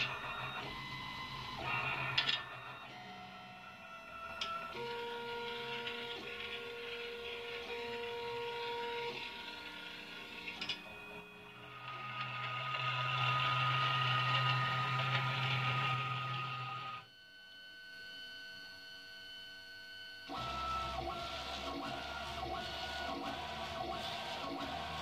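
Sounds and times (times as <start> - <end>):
printer gantry shuttling whine: 0.0 - 17.0, 20.3 - 25.0
three-d printer stepper motors: 0.0 - 17.0, 20.3 - 25.0.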